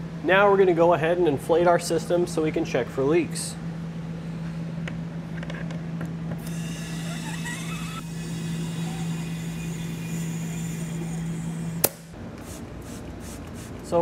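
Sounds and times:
low steady hum: 0:00.0 - 0:14.0
rising whistle: 0:06.6 - 0:11.8.

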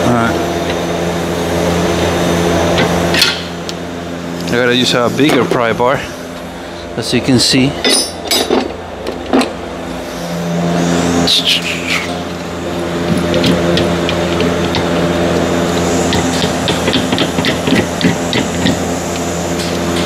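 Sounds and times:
machine hum: 0:00.0 - 0:20.0
pry bar clicking and scraping metal: 0:16.1 - 0:19.8.

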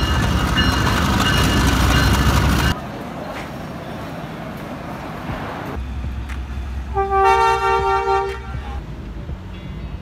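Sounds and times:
train horn blast: 0:06.9 - 0:08.8.

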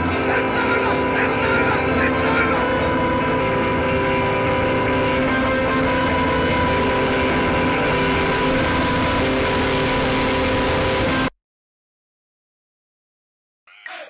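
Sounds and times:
sustained music chords: 0:00.0 - 0:11.3
low rumble: 0:01.6 - 0:11.3.

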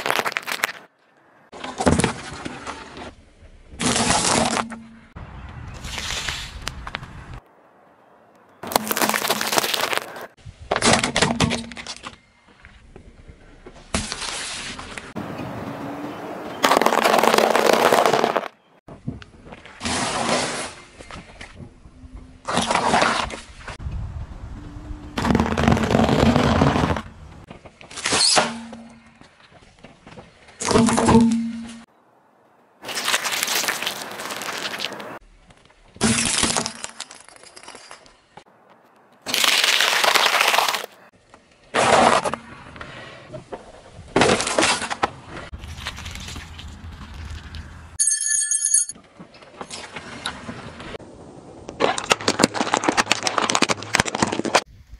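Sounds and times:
tyre crunching foil-wrapped object: 0:00.0 - 0:00.9, 0:08.7 - 0:10.3, 0:32.8 - 0:35.2, 0:39.3 - 0:41.1
tyre crushing food on asphalt: 0:00.0 - 0:00.9, 0:08.6 - 0:12.1, 0:16.6 - 0:18.5, 0:25.2 - 0:28.3, 0:38.7 - 0:41.0, 0:51.8 - 0:54.7.

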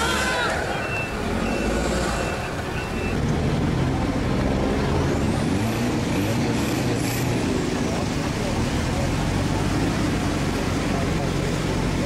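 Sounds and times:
truck engine under heavy load: 0:00.0 - 0:12.0
short high beeps: 0:00.7 - 0:03.2.

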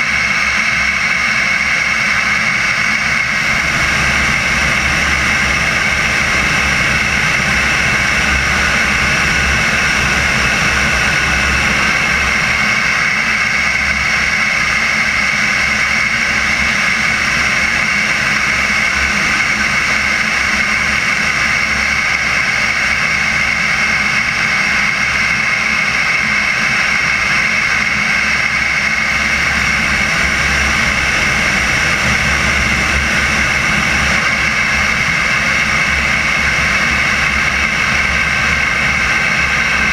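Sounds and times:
jet turbine engine whine: 0:00.0 - 0:39.9
rushing air: 0:02.2 - 0:22.6, 0:28.6 - 0:39.9.

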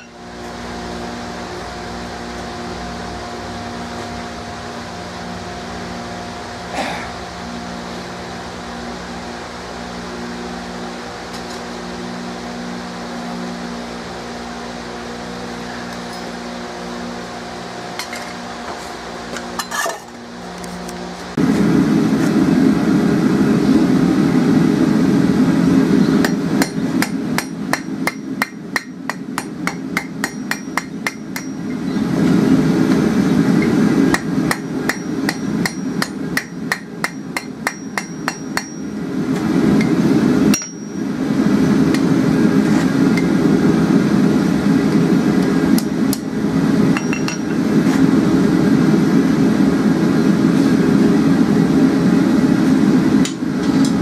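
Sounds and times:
gas forge burner roar: 0:00.0 - 0:54.0
hammer striking steel on anvil: 0:26.2 - 0:31.8, 0:34.1 - 0:39.0, 0:40.5 - 0:41.0, 0:46.9 - 0:47.6.

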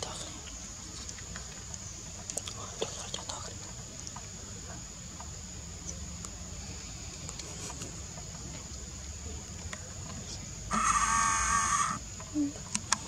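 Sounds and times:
high insect drone: 0:00.0 - 0:13.0
baby monkey squealing: 0:10.7 - 0:12.0.

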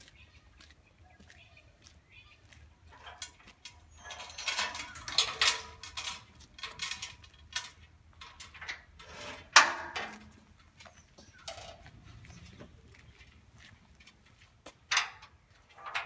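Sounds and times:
metal platform clanking and rattling: 0:02.9 - 0:10.5, 0:14.9 - 0:16.0.

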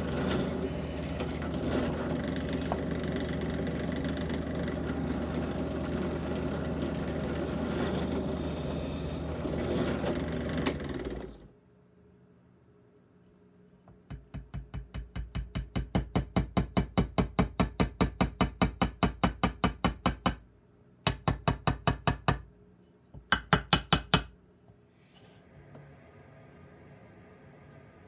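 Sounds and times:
hammer tapping on wooden toy: 0:14.1 - 0:20.4, 0:23.2 - 0:24.3.

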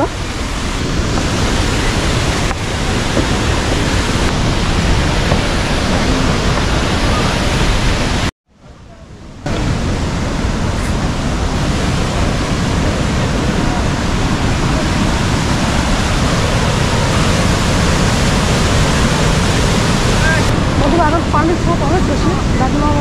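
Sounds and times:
waterfall rushing: 0:00.0 - 0:08.3, 0:09.1 - 0:23.0.

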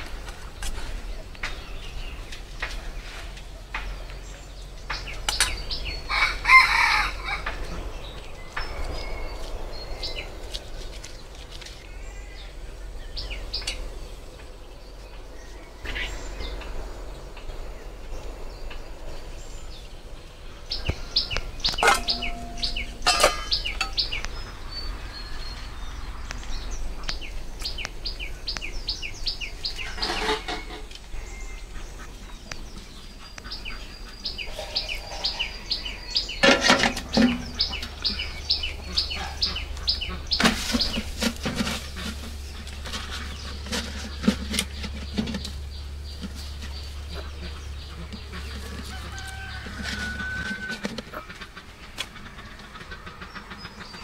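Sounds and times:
chickens calling: 0:00.0 - 0:17.5, 0:19.8 - 0:54.0
small birds chirping: 0:00.0 - 0:54.0.

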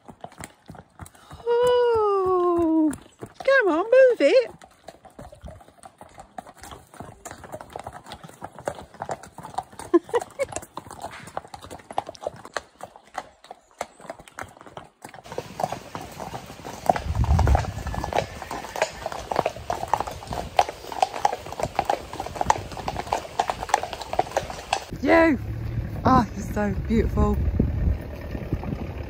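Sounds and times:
horse hooves clip-clopping on tarmac: 0:00.0 - 0:29.0.

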